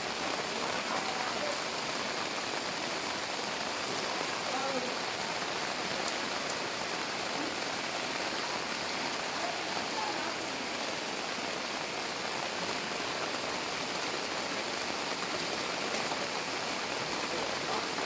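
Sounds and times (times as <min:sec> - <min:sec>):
floodwater running over road: 0:00.0 - 0:18.0
heavy rain pouring: 0:00.0 - 0:18.0.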